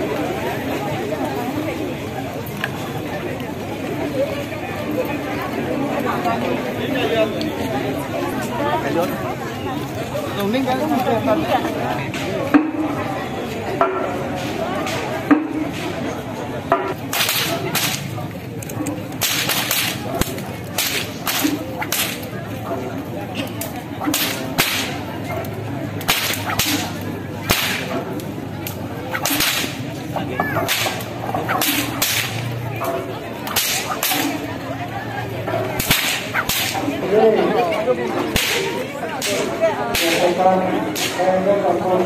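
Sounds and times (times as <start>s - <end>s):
murmuring crowd: 0.0s - 42.0s
whips cracking: 17.0s - 22.4s, 23.4s - 30.0s, 30.6s - 34.5s, 35.8s - 36.9s, 38.4s - 41.2s.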